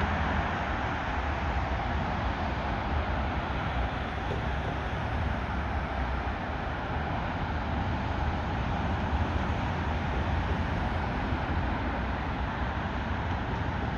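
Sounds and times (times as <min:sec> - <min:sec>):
jet engines at climb power: 0:00.0 - 0:13.9.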